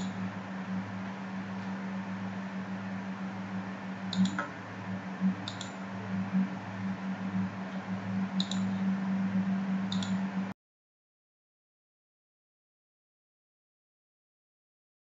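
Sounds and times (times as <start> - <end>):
steady low hum: 0.0 - 10.6
computer mouse clicking: 4.1 - 4.6, 5.4 - 5.8, 8.4 - 8.8, 9.9 - 10.2.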